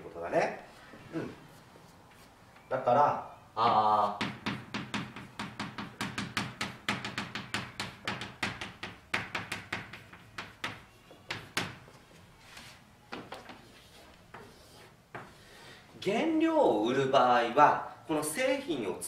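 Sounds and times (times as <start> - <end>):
chalk tapping on blackboard: 4.1 - 12.0, 13.1 - 15.4.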